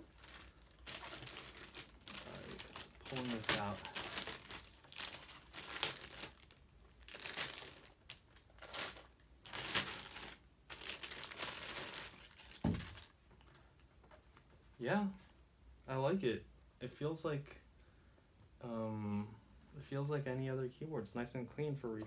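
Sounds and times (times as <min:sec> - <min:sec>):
plastic bag crinkling: 0:00.0 - 0:13.2.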